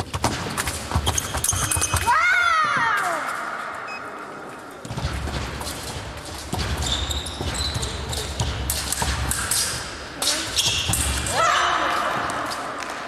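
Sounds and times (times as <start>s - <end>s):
fencers footfalls and thuds: 4.8s - 11.3s.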